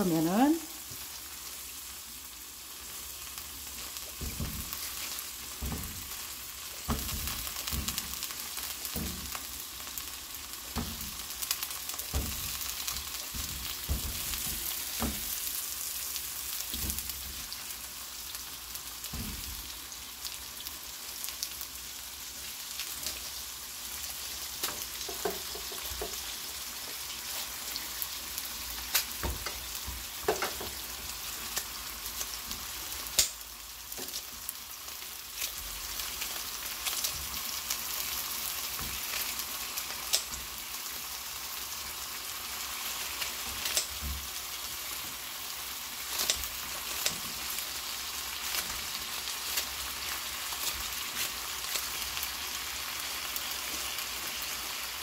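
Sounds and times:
sausage sizzling in a frying pan: 0.0s - 55.0s
pieces dropping into pan: 3.9s - 9.5s, 10.7s - 15.5s, 28.8s - 30.8s
kitchen scissors snipping: 33.1s - 33.4s, 40.1s - 40.4s, 43.6s - 44.0s, 46.1s - 47.4s.

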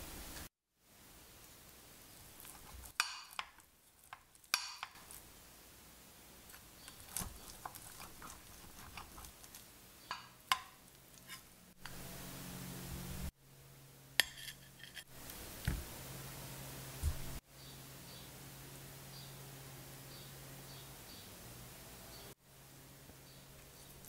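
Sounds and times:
quiet hiss: 0.0s - 24.0s
metal spatula scraping glass dish: 14.2s - 15.2s.

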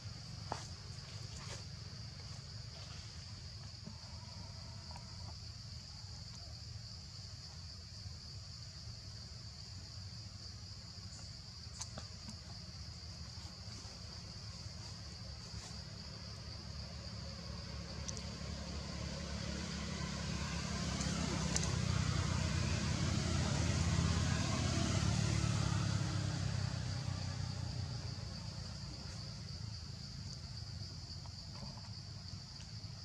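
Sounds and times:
insects buzzing: 0.0s - 33.0s
vehicle engine rumble passing: 11.0s - 33.0s.

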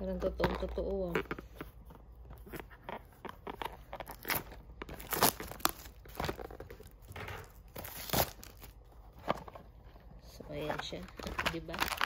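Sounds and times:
plastic shrink-wrap crinkling and tearing: 3.3s - 8.9s, 10.7s - 12.0s.

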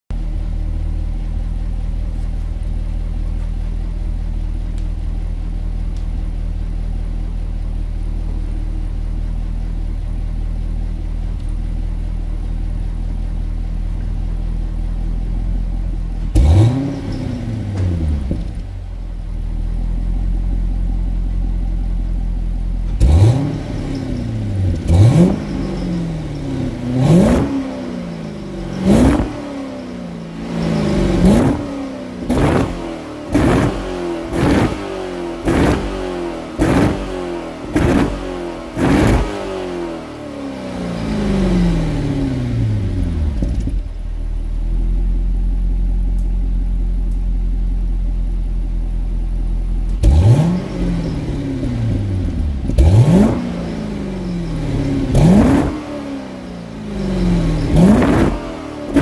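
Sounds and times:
car engine idling: 0.1s - 59.0s
car engine revving: 16.1s - 18.8s, 22.8s - 43.9s, 49.9s - 59.0s.

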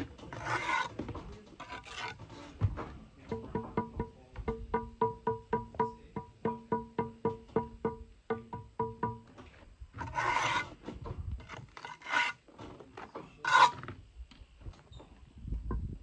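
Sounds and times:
trowel scraping mortar: 0.2s - 1.0s, 1.6s - 2.5s, 10.0s - 10.8s, 11.4s - 12.5s, 13.4s - 13.8s.

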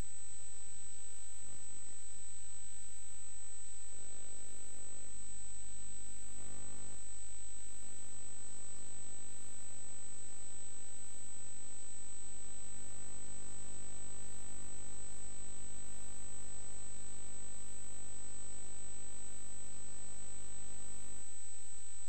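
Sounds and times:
electrical hum and buzz: 0.0s - 22.0s.

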